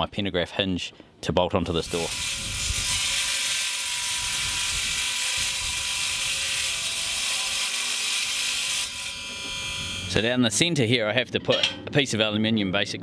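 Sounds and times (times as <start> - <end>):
welding arc hiss: 1.9 - 10.2.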